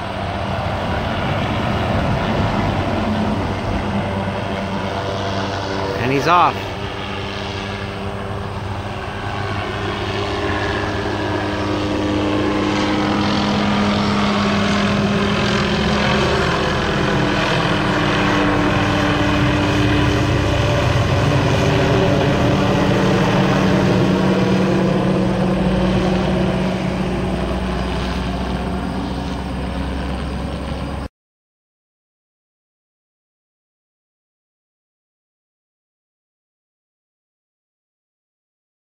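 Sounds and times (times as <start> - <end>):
helicopter flying overhead: 0.0 - 31.1.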